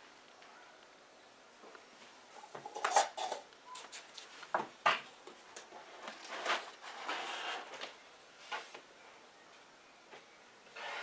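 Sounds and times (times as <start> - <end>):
paper rustling and scraping: 5.8 - 8.7.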